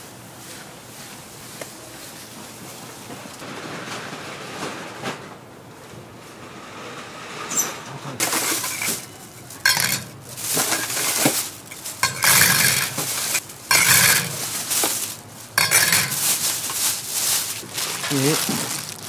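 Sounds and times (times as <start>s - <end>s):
metal presses clanking on griddle: 8.2s - 16.8s.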